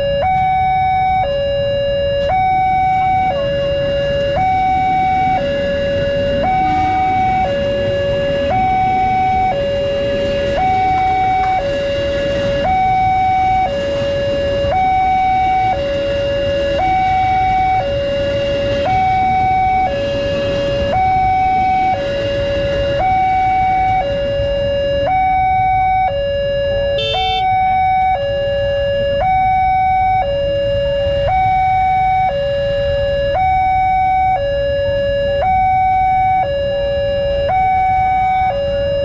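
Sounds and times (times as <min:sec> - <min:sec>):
level crossing alarm two tones: 0:00.0 - 0:11.8, 0:26.9 - 0:28.2
electric train passing: 0:04.7 - 0:24.4.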